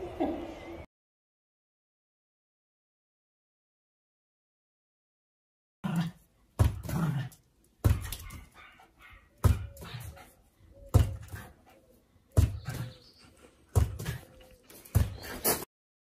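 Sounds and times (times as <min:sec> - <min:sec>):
small dog barking: 0:07.9 - 0:09.6.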